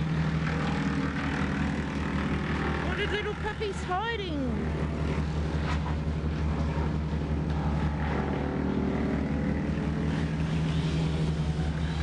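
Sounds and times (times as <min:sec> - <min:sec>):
machinery engine drone: 0:00.0 - 0:12.0.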